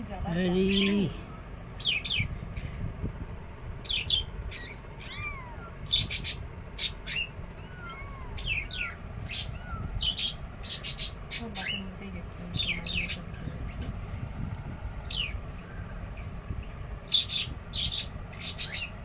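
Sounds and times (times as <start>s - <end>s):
kittens mewing: 4.5s - 11.8s.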